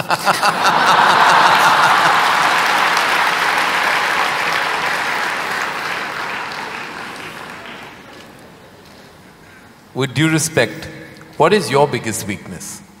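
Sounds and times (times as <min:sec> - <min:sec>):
audience applauding: 0:00.4 - 0:09.2.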